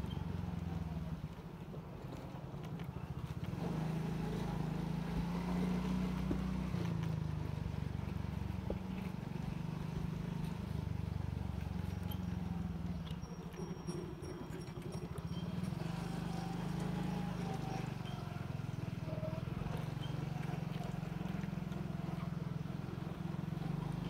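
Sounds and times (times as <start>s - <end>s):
motorcycle engine rumble: 0.0s - 24.0s.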